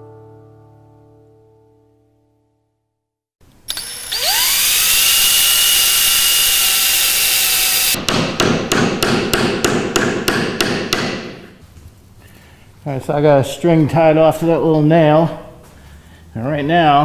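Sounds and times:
cordless drill whining: 3.7 - 8.0
hammer tapping nail: 8.0 - 11.4.

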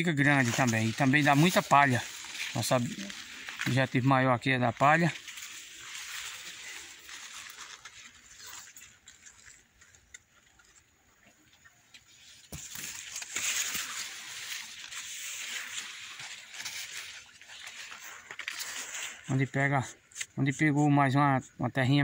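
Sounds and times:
leaves rustling and brushing: 0.0 - 10.9, 11.9 - 20.4.

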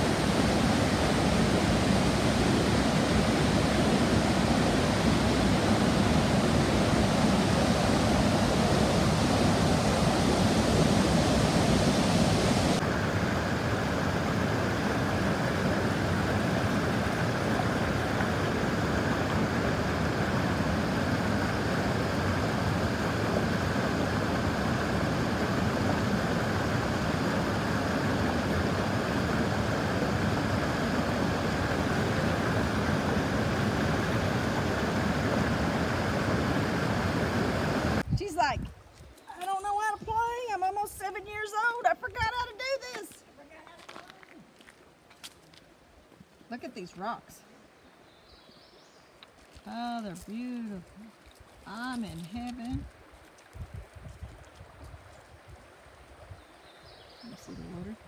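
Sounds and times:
water rushing over rocks: 0.0 - 38.0.

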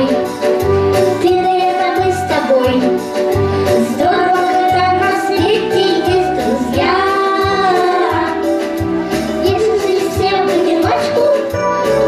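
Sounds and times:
instrumental backing with bass beat: 0.0 - 12.0
child singing into a microphone: 1.2 - 3.0, 3.9 - 8.4, 9.4 - 11.6.

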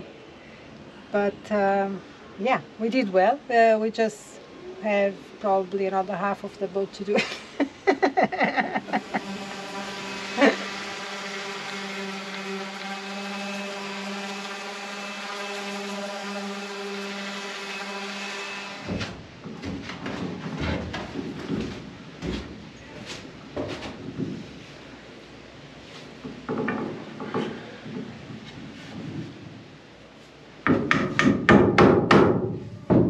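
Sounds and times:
electric sander humming: 8.7 - 19.0
knocks and scrapes of wood: 18.2 - 24.8, 25.8 - 31.5.

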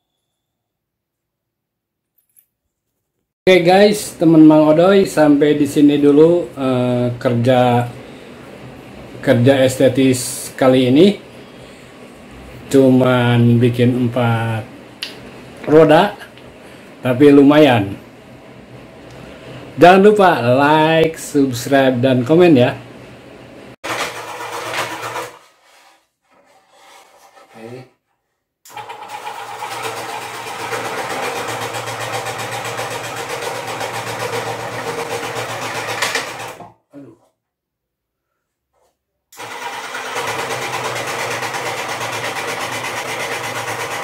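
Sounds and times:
scroll saw cutting wood: 23.8 - 27.8, 28.7 - 36.7, 39.4 - 44.0.

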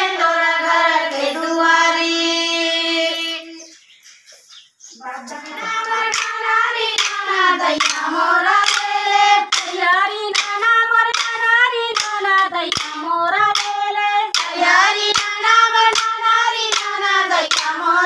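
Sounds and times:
women singing folk song: 0.0 - 3.7, 5.0 - 18.0
hand claps: 5.4 - 18.0.

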